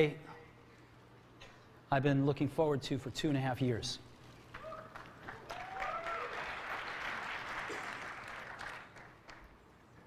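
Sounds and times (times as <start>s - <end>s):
cheering whoops: 4.5s - 6.8s
large audience applauding: 4.5s - 9.6s.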